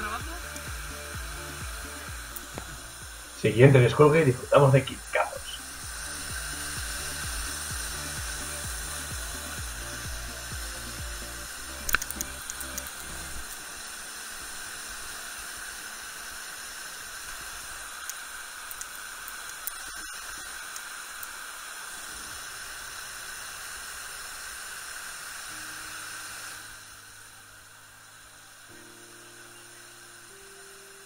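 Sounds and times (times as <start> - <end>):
soft background music: 0.0 - 18.2, 25.1 - 31.0
waterfall rushing: 0.0 - 31.0
faint small clicks: 18.0 - 21.4.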